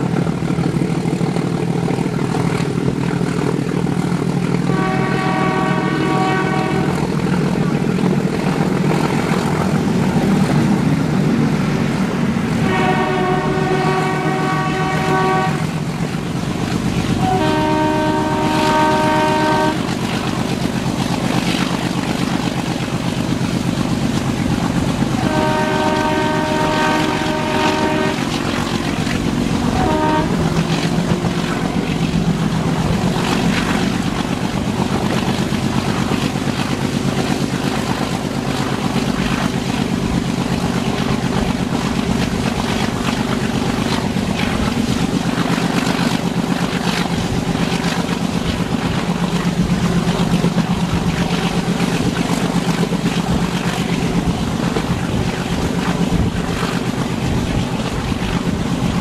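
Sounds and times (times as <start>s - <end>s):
train rumbling: 0.0s - 59.0s
locomotive horn blasts: 4.7s - 7.1s, 12.6s - 15.8s, 17.2s - 20.0s, 25.2s - 28.7s, 29.6s - 31.1s.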